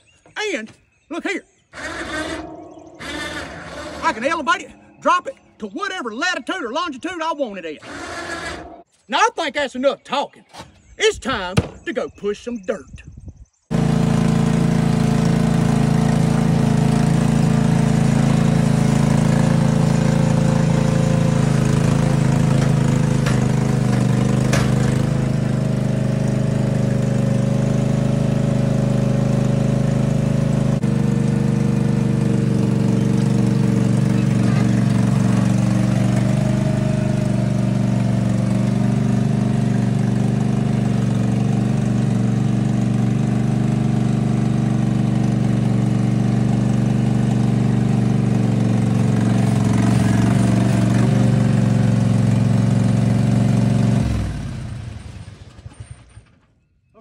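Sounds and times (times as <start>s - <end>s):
lawnmower engine running: 1.7s - 4.6s, 7.8s - 8.9s, 13.7s - 56.4s
blade pushing dirt: 1.8s - 4.4s, 13.7s - 42.6s, 45.3s - 52.5s.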